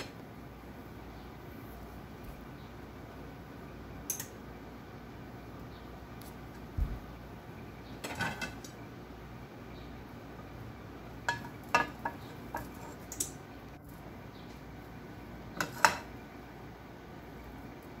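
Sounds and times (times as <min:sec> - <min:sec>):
kitchenware knocks and clinks: 0:08.0 - 0:08.6, 0:11.3 - 0:12.9.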